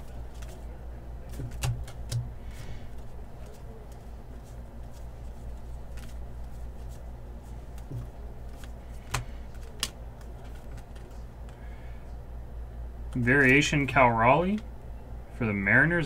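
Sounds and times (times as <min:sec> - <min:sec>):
steady low hum: 0:00.0 - 0:16.0
cards sliding: 0:01.3 - 0:11.6.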